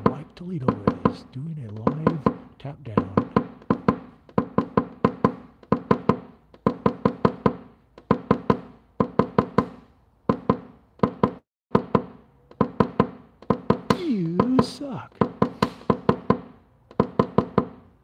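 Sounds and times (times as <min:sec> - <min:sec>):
hammer tapping sheet metal: 0:00.0 - 0:10.6.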